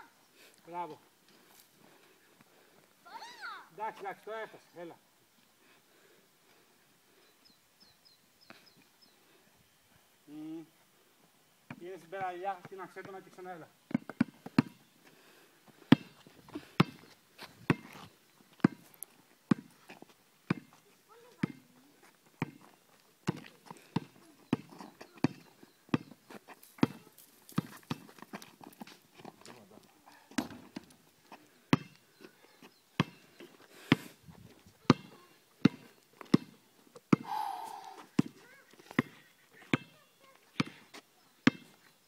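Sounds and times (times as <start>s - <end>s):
basketball bouncing on asphalt: 11.7s - 13.3s, 13.9s - 14.8s, 15.9s - 16.2s, 16.8s - 17.0s, 17.6s - 18.9s, 19.5s - 21.8s, 22.4s - 26.2s, 26.8s - 29.0s, 30.3s - 31.0s, 31.7s - 32.0s, 32.6s - 33.2s, 34.8s - 37.3s, 38.0s - 41.8s.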